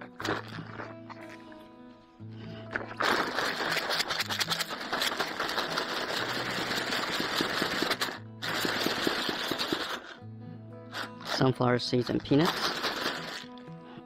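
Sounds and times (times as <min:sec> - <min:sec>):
background music: 0:00.0 - 0:14.0
peanuts rattling in plastic tub: 0:03.0 - 0:10.2, 0:11.0 - 0:13.6.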